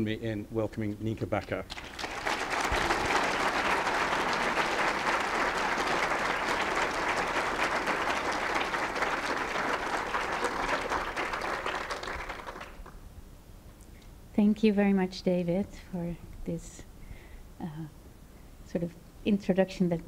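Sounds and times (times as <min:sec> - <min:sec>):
audience applauding: 0:01.7 - 0:13.0.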